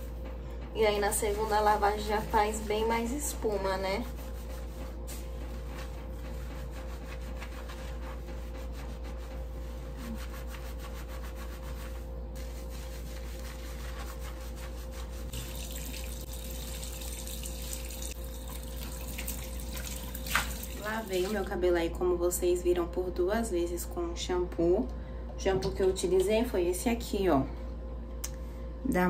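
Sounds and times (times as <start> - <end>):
hair being scrubbed by hand: 0.8 - 18.2, 18.9 - 21.6
water running into a basin: 15.3 - 21.4.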